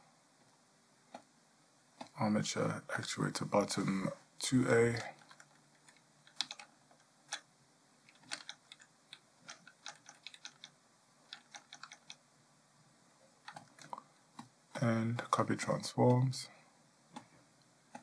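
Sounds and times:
computer keys clicking: 5.2s - 12.2s, 13.4s - 14.9s.

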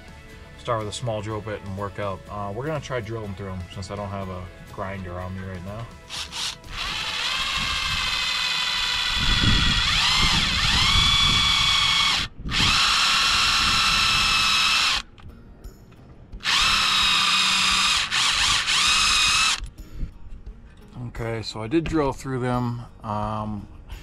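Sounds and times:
cordless drill drilling metal: 6.0s - 15.1s, 16.4s - 19.7s.

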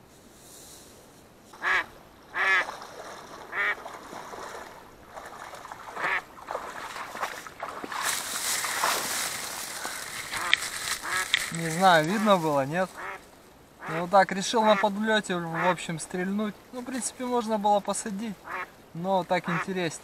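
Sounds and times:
footsteps wading through water: 1.5s - 13.2s
duck quacking: 1.6s - 2.7s, 3.5s - 3.8s, 5.9s - 6.3s, 10.3s - 13.2s, 13.8s - 14.9s, 15.5s - 15.8s, 18.4s - 18.7s, 19.4s - 19.7s.

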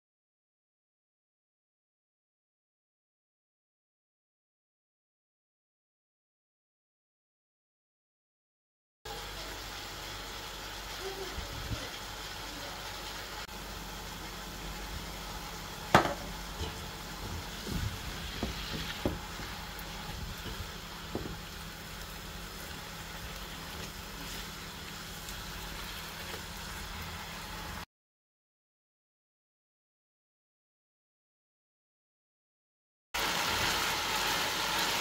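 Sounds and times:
chicken sizzling in a pan: 9.1s - 27.8s, 33.2s - 35.0s
spatula knocking and scraping pan: 15.9s - 21.6s.

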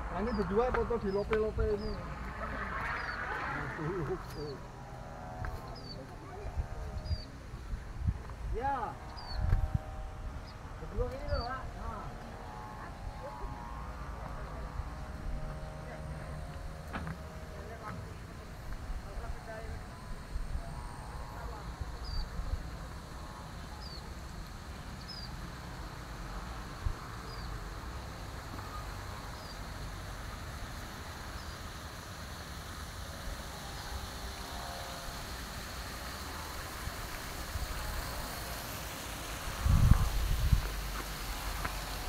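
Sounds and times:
wind on microphone: 0.0s - 15.7s, 36.5s - 42.0s.

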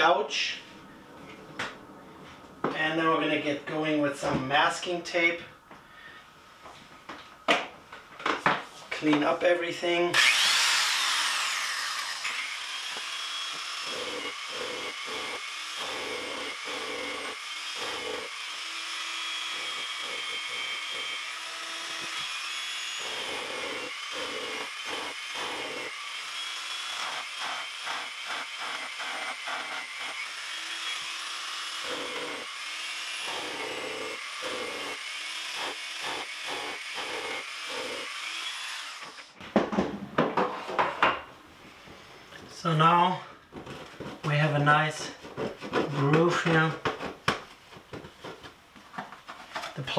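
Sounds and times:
belt sander whining: 10.1s - 39.4s.

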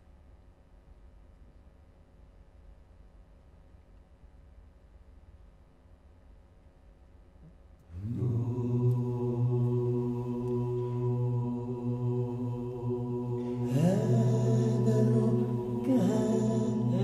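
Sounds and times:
deep droning chant voice: 7.9s - 17.0s.

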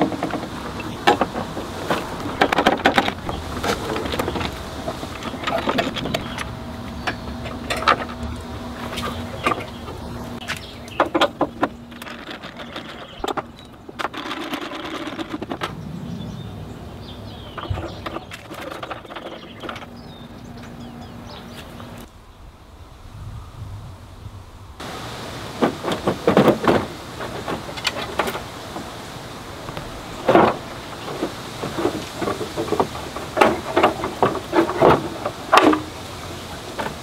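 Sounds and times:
low steady hum: 0.0s - 14.0s.

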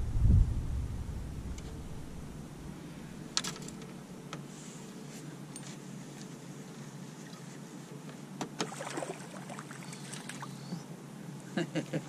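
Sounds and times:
low hum: 0.0s - 6.9s.

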